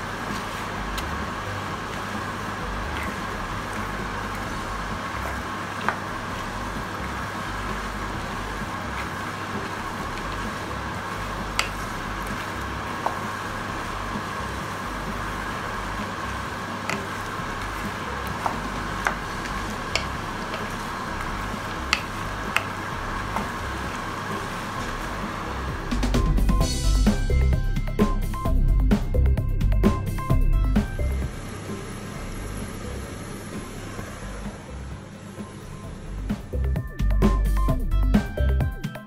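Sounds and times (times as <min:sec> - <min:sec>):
peanuts sizzling in oil: 0:00.0 - 0:26.0
wooden spatula stirring: 0:00.0 - 0:26.5.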